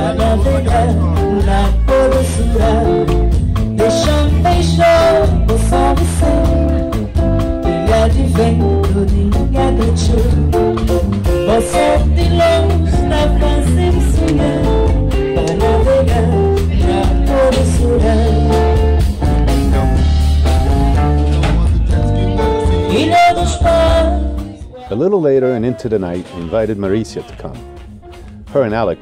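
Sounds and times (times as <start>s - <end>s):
woman singing into a microphone: 0.0s - 19.0s, 22.7s - 25.7s
acoustic guitar: 0.0s - 29.0s
electric bass guitar: 0.0s - 29.0s.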